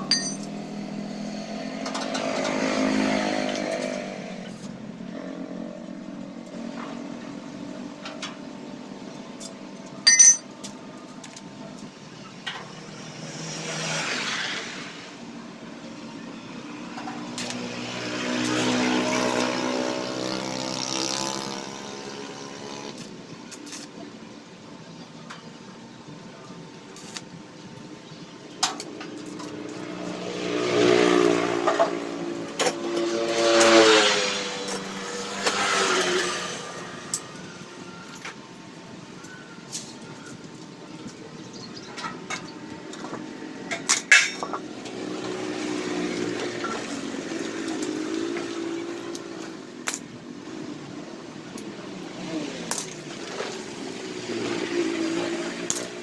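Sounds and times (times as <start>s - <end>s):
metallic clink: 0.0s - 1.0s, 10.1s - 10.5s
vehicle engines passing: 0.0s - 24.4s, 26.6s - 56.0s.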